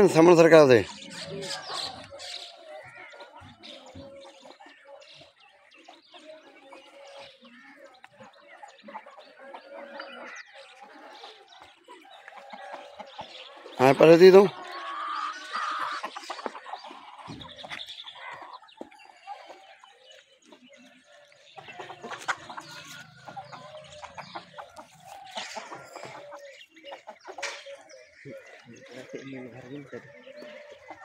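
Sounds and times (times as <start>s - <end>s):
chickens and roosters clucking: 0.0s - 31.0s.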